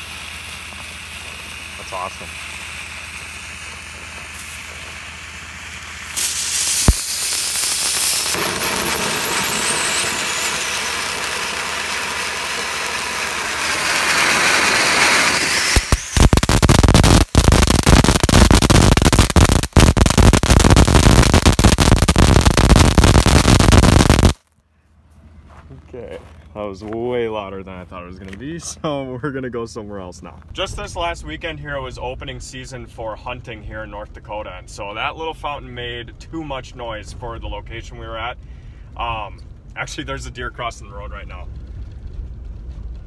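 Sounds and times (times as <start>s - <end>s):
firework spraying hiss: 0.0s - 24.4s
firework loud crackling: 0.0s - 24.5s, 36.3s - 43.0s.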